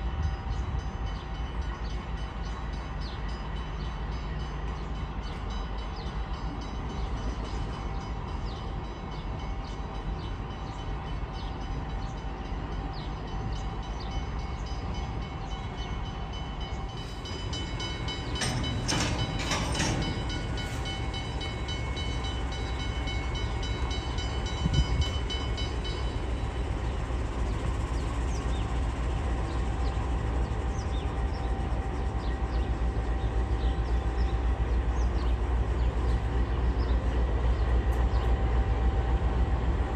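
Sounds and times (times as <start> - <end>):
diesel train engine rumble: 0.0 - 39.9
metal clanks: 17.4 - 22.3.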